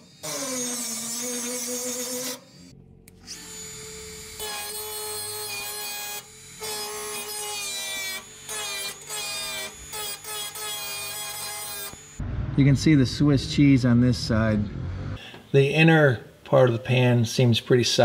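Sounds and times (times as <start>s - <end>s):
rotary tool grinding metal: 0.0s - 12.2s.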